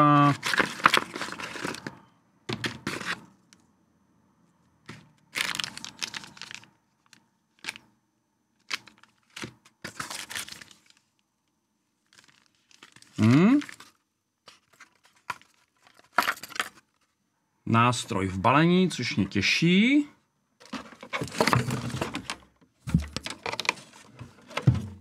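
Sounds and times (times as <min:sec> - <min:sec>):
packaging rustling and tearing: 0:00.2 - 0:01.9, 0:05.3 - 0:07.8, 0:08.7 - 0:11.1, 0:12.0 - 0:16.2.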